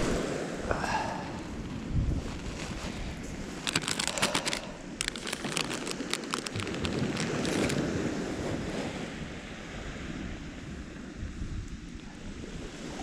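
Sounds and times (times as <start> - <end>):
waves washing onto beach: 0.0 - 13.0
wind buffeting microphone: 0.0 - 13.0.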